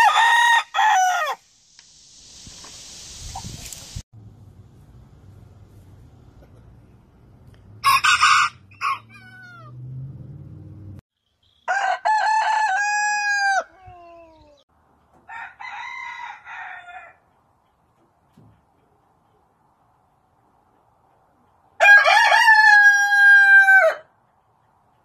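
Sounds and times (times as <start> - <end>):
roosters crowing: 0.0 - 1.4, 7.8 - 9.9, 11.6 - 14.6, 15.2 - 17.3, 21.8 - 24.1.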